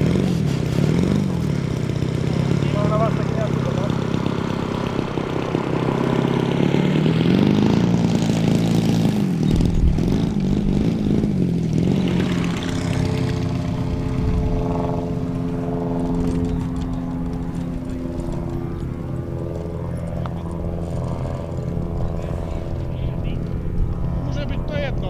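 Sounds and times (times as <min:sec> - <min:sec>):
model plane engine running: 0:00.0 - 0:25.0.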